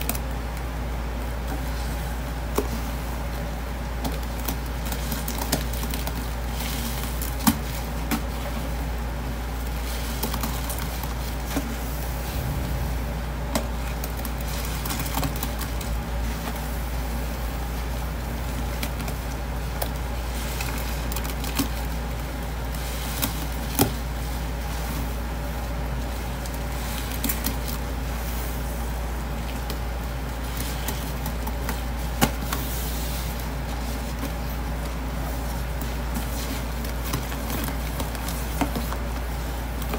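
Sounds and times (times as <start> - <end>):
steady low hum: 7.8 - 21.2.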